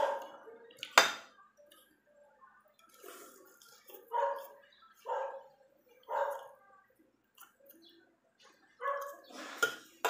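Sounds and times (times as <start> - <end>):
dog barking: 0.0 - 0.4, 4.1 - 5.5, 6.1 - 6.5, 8.8 - 9.2.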